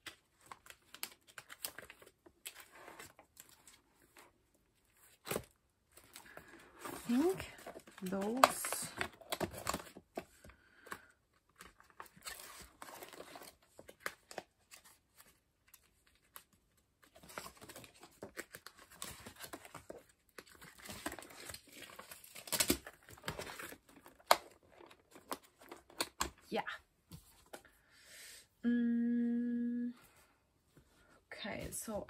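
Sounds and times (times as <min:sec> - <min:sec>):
plastic sleeves crinkling: 0:05.0 - 0:10.2.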